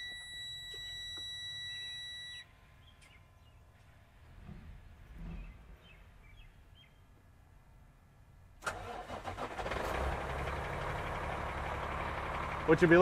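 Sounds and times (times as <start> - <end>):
diesel truck engine starting and idling: 8.6 - 13.0.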